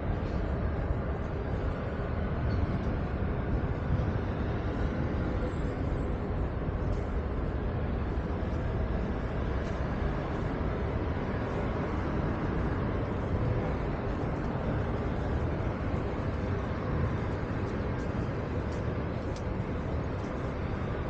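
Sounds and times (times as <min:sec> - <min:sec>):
road traffic rumble: 0:00.0 - 0:21.0.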